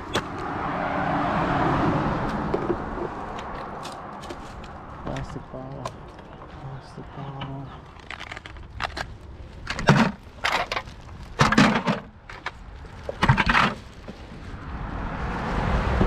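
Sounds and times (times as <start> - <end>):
car passing: 0.0 - 7.3, 13.9 - 16.0
plastic litter crunching: 7.5 - 14.6.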